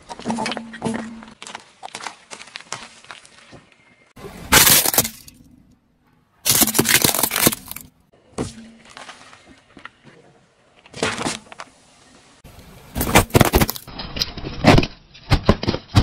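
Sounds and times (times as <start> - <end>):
car tyre crushing objects: 4.3 - 5.6, 6.4 - 9.2, 12.8 - 16.0
plastic bricks cracking: 6.5 - 8.0, 13.0 - 13.9.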